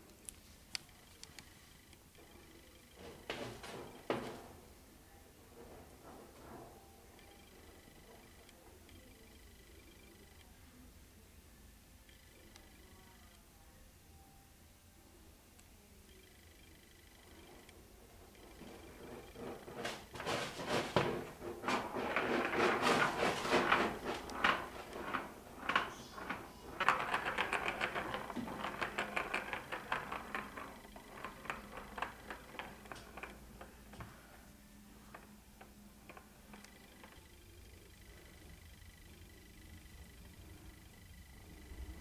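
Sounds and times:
plastic ball rattling in track: 17.2s - 41.9s.

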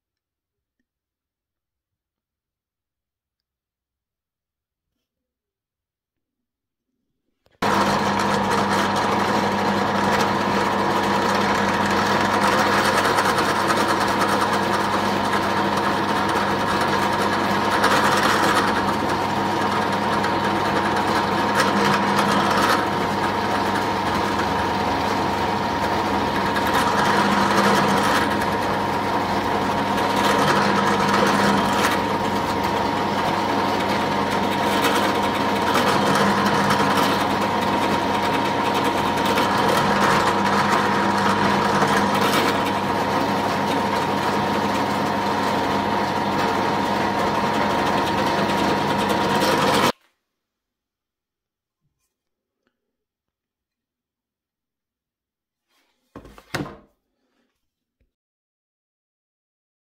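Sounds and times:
drill bit boring into wood: 7.6s - 50.0s
drill press motor hum: 7.6s - 50.0s.

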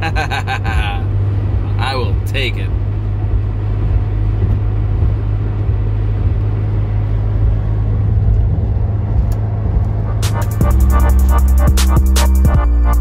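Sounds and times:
car cabin engine and road drone: 0.0s - 13.0s
music: 10.1s - 13.0s.

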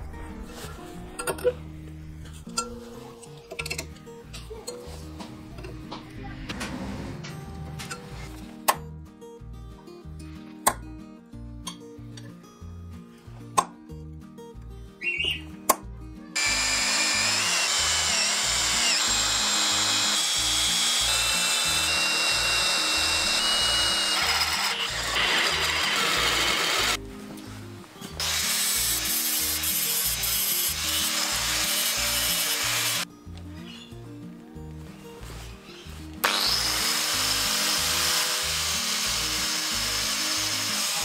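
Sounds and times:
drill bit grinding steel: 16.4s - 27.0s, 28.2s - 33.0s, 36.2s - 41.0s.

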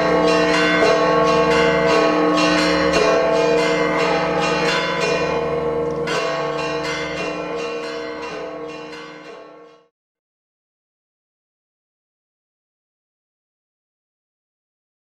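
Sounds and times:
church bells pealing: 0.0s - 9.9s.

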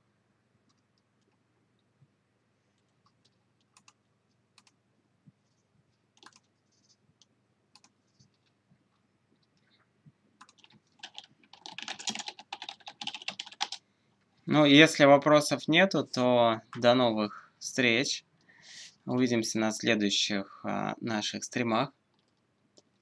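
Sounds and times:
fast typing on keyboard: 3.1s - 4.0s, 4.6s - 4.8s, 6.2s - 6.5s, 10.4s - 13.8s.

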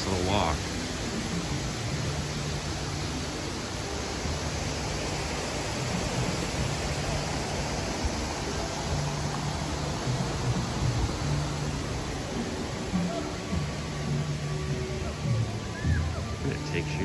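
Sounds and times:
water rushing in stream: 0.0s - 17.0s.

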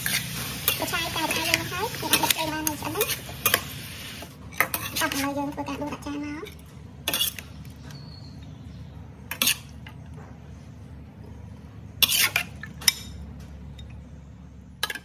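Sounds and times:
metal spatula scraping a wok: 0.0s - 5.4s, 7.0s - 7.5s, 9.3s - 9.7s, 12.0s - 12.6s
steady low hum: 0.0s - 15.0s.

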